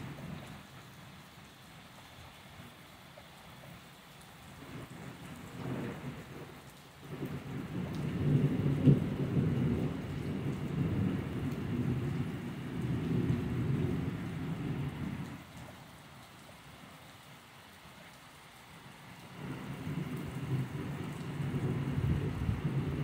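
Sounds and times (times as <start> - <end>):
steady rain: 0.0 - 23.0
thunder rumbling: 4.7 - 15.4, 19.3 - 23.0.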